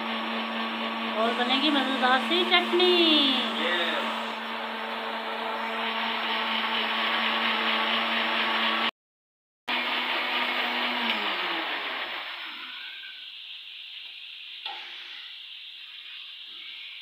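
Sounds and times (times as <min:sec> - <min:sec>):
electric blender grinding: 0:00.0 - 0:08.9, 0:09.7 - 0:13.3.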